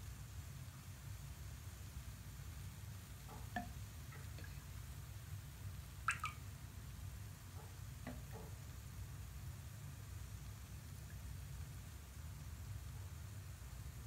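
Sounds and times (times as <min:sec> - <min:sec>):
water drops plinking into bath: 0:03.5 - 0:03.8, 0:06.1 - 0:06.4.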